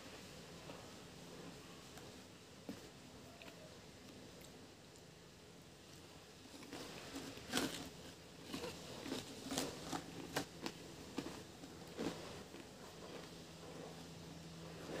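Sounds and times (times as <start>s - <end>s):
potato chips crunching: 6.5s - 13.3s.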